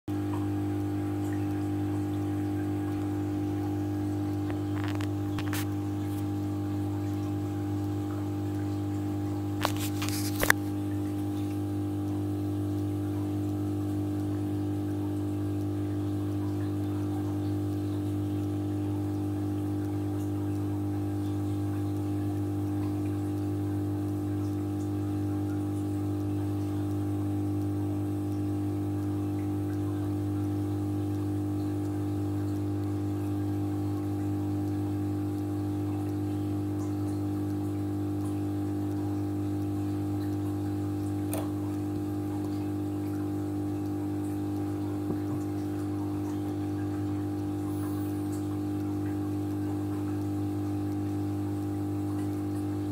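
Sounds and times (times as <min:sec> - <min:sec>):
aquarium pump humming: 0:00.1 - 0:52.9
circulating water: 0:00.1 - 0:52.9
short click: 0:41.3 - 0:41.6.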